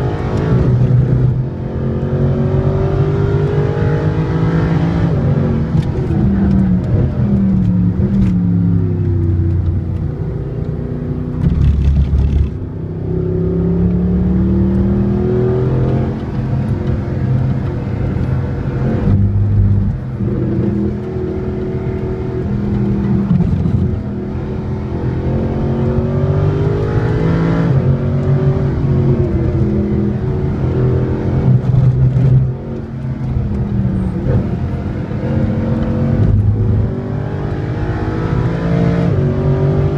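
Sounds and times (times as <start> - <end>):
car engine accelerating: 0.0 - 39.9.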